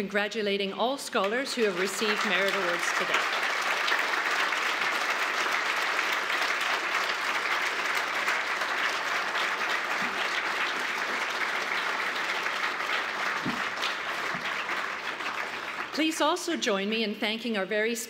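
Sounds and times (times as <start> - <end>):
audience applauding: 1.2 - 16.2.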